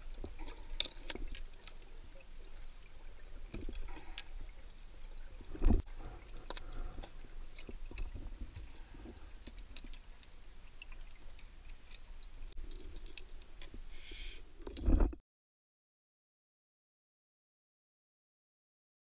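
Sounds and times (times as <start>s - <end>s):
muffled underwater rumble: 1.9s - 10.1s
short hiss: 13.9s - 14.4s.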